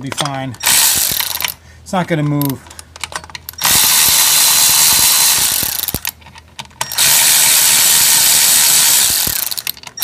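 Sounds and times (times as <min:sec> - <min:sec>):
powered ratchet spinning bolts: 0:00.6 - 0:01.6, 0:03.4 - 0:06.2, 0:06.8 - 0:10.0.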